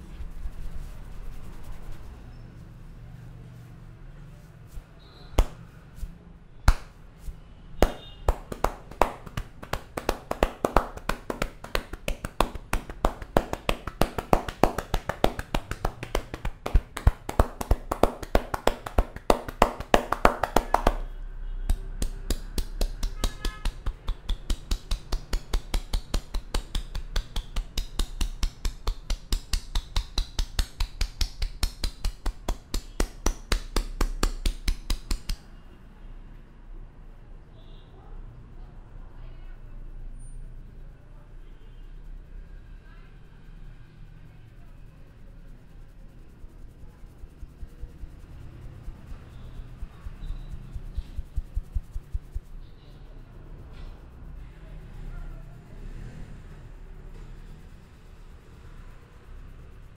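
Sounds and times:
hands striking head rhythmically: 0:05.4 - 0:05.6, 0:06.7 - 0:07.0, 0:07.8 - 0:21.1, 0:21.7 - 0:35.5, 0:50.6 - 0:52.6.

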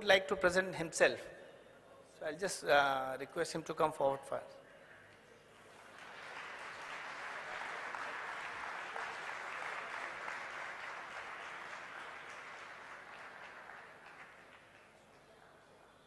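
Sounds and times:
audience applauding: 0:05.6 - 0:15.2.

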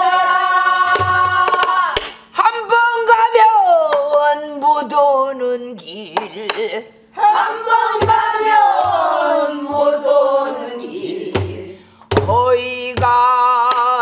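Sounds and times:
barrel drum thumps: 0:07.9 - 0:10.0, 0:11.3 - 0:13.2.

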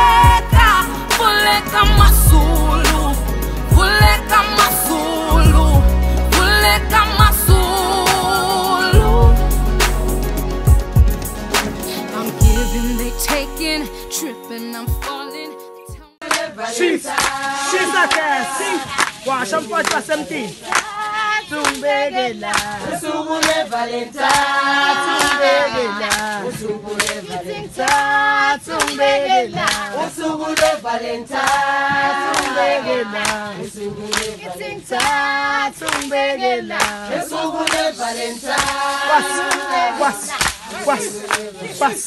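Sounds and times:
choir singing in harmony: 0:00.0 - 0:14.5, 0:15.5 - 0:19.0, 0:20.9 - 0:42.0
sharp hand claps: 0:21.6 - 0:21.8, 0:22.5 - 0:22.8, 0:26.1 - 0:26.4, 0:27.0 - 0:27.2, 0:28.7 - 0:29.0, 0:34.1 - 0:34.3, 0:35.8 - 0:36.1, 0:40.3 - 0:40.6.

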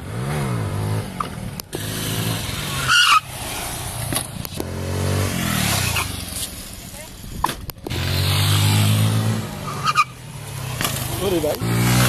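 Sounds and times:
motorcycle engine revving: 0:00.0 - 0:12.0
high-pitched squeal: 0:01.8 - 0:03.8.

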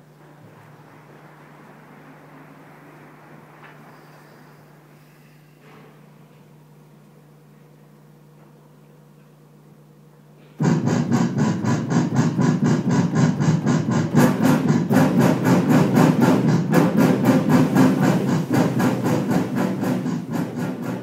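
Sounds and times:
ensemble playing pulsed chords: 0:10.6 - 0:21.0.

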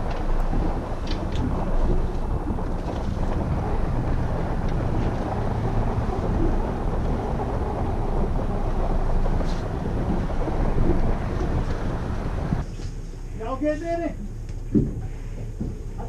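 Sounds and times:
wind buffeting microphone: 0:00.0 - 0:12.7.

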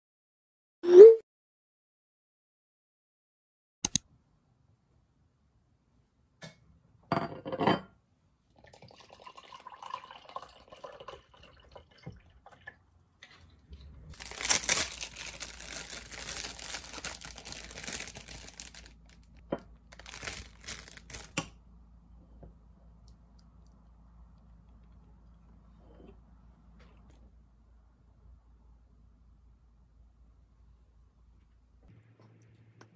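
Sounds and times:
wrapping crinkling: 0:14.1 - 0:21.4.

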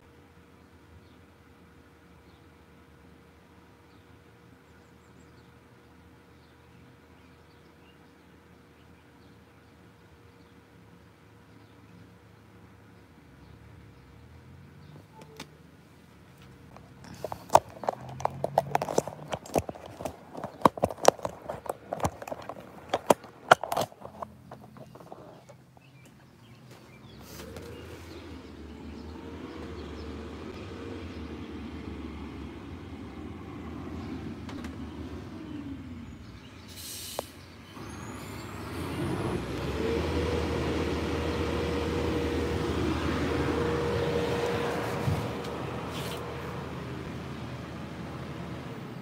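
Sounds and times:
vehicle engine running: 0:13.2 - 0:49.0
sharp clicks and knocks: 0:16.7 - 0:26.2.

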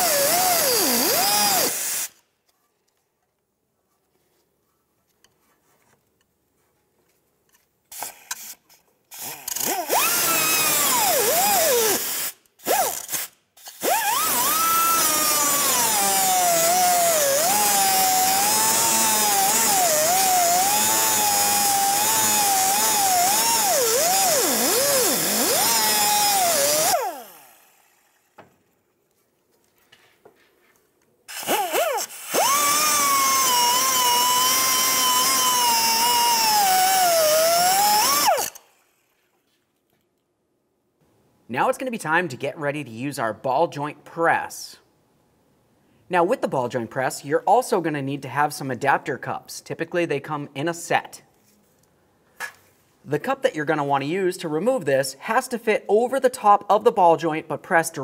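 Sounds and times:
cut-off wheel grinding metal: 0:13.7 - 0:27.8, 0:31.3 - 0:38.7.

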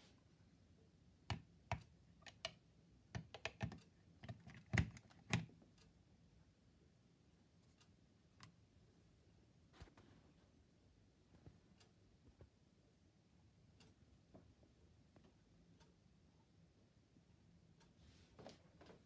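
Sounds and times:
plastic clicks and knocks: 0:03.2 - 0:05.5.

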